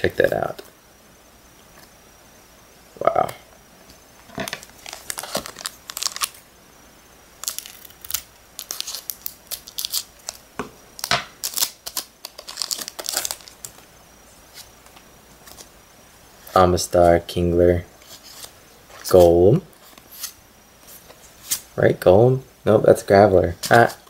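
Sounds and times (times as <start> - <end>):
foil wrapper crinkling and tearing: 4.5 - 6.4, 7.4 - 13.8
cards sliding out: 19.2 - 21.7.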